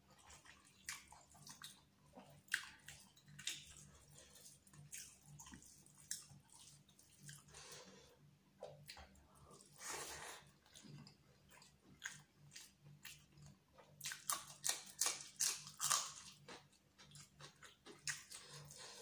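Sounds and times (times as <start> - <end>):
chewing: 0.1 - 8.0, 8.6 - 19.0.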